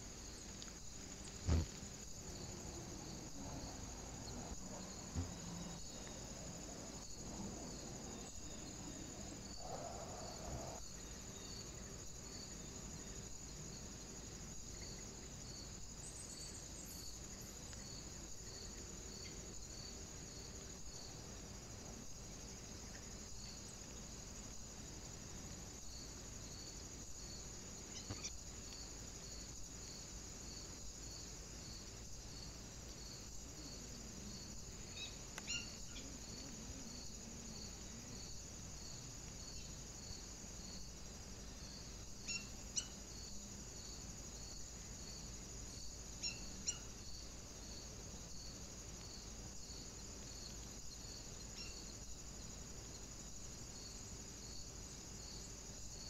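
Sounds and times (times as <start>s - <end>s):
insect chirping: 0.0s - 56.0s.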